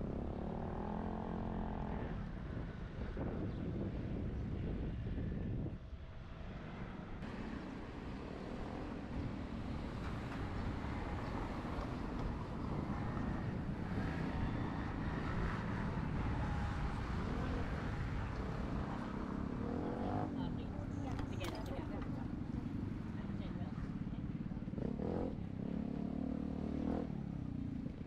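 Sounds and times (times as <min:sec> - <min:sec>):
road traffic noise: 0:00.0 - 0:28.0.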